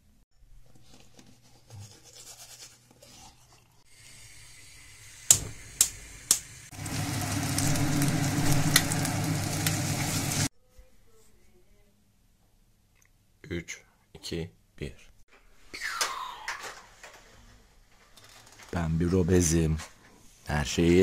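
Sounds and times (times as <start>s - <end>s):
toothbrush scrubbing: 1.4s - 3.9s
eggs sizzling in hot oil: 3.8s - 10.5s.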